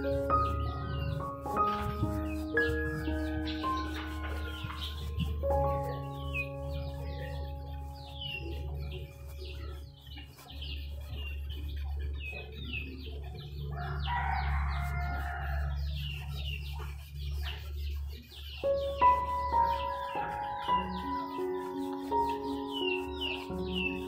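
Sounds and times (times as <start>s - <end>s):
held musical tones: 0.0s - 14.6s
small birds chirping: 0.0s - 24.0s.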